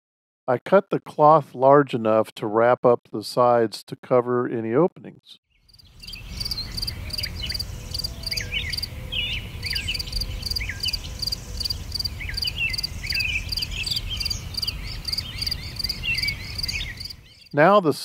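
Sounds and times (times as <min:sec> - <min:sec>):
high chirping calls: 0:05.6 - 0:17.6
crickets chirping: 0:05.7 - 0:17.3.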